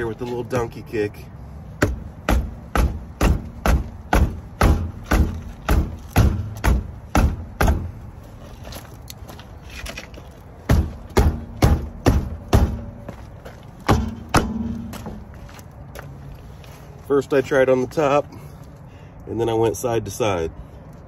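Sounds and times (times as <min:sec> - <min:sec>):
boot kicking car wheel: 0:01.8 - 0:08.0, 0:10.7 - 0:15.4.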